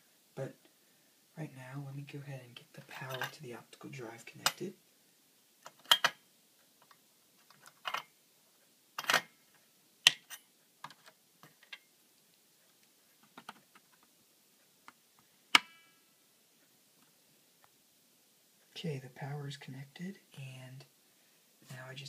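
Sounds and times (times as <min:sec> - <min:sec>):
plastic connectors clicking and knocking: 0:05.6 - 0:06.2.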